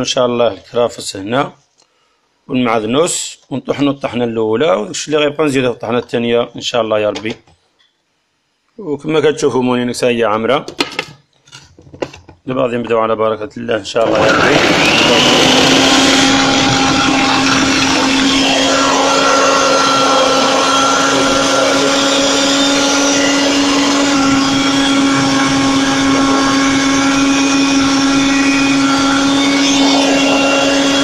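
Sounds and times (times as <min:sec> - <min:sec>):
food processor motor hum: 0:14.0 - 0:31.0.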